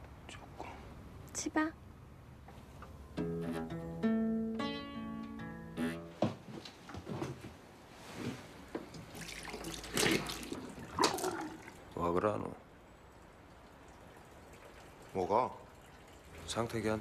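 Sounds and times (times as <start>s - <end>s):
guitar chords: 3.0s - 6.3s.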